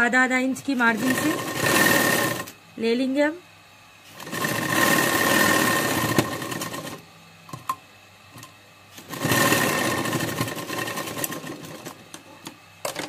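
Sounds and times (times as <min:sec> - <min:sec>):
sewing machine stitching: 0:00.8 - 0:02.5, 0:04.1 - 0:07.0, 0:09.0 - 0:12.0.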